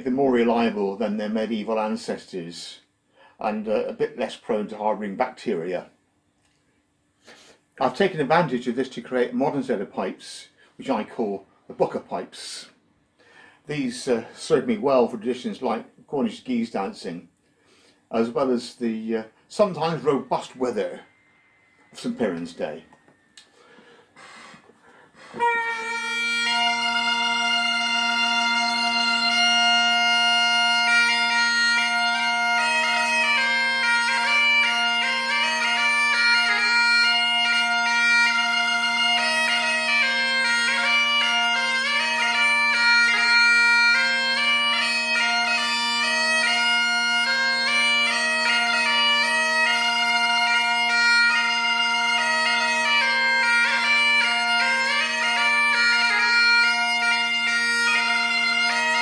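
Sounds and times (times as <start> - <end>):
bagpipe chanter playing dance tune: 17.7 - 59.0
bagpipe drone: 18.2 - 59.0.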